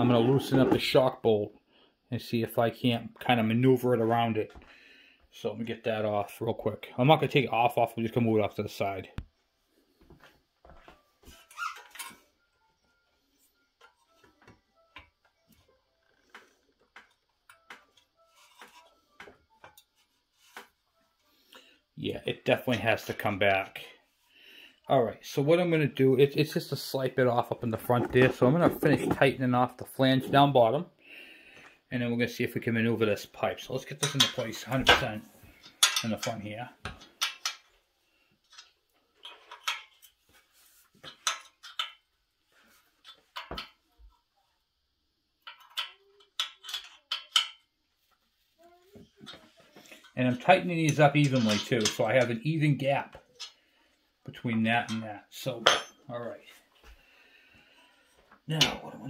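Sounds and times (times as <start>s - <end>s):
hand tools clinking on metal: 33.9s - 36.4s, 50.8s - 52.4s.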